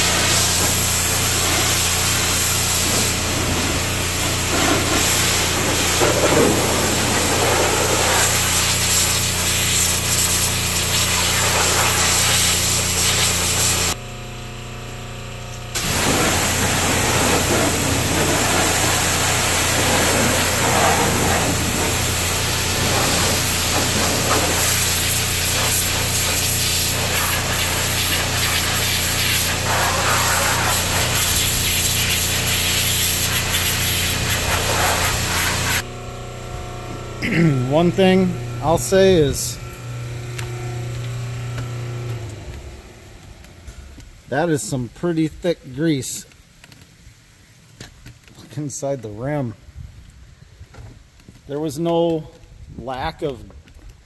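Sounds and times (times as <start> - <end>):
pressure washer spraying: 0.0 - 14.0, 15.8 - 35.9
pump motor humming: 0.0 - 44.0.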